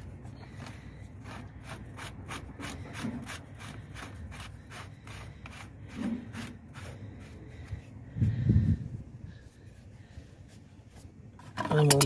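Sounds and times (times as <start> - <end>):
plastic nut rasping rub: 0.3 - 7.8.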